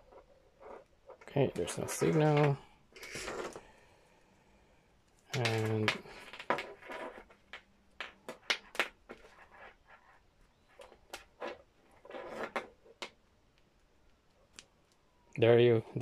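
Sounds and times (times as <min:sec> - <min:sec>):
wire connectors clicking and rustling: 0:00.0 - 0:03.7, 0:05.1 - 0:09.4.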